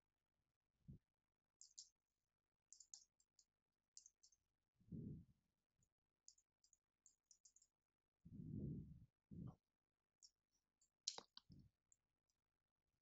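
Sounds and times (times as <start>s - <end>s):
low muffled sound: 4.8s - 5.4s, 8.3s - 9.6s.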